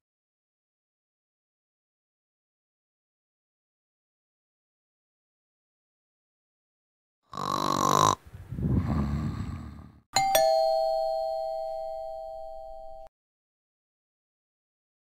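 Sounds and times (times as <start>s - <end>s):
two-note doorbell chime: 10.2s - 13.1s.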